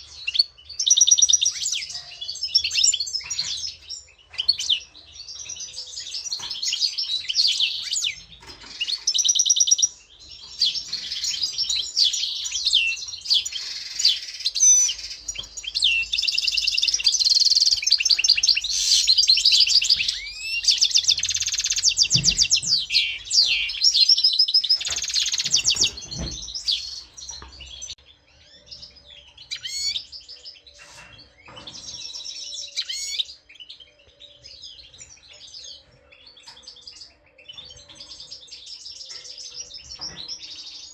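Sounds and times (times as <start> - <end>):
finches twittering song: 0.0 - 35.4.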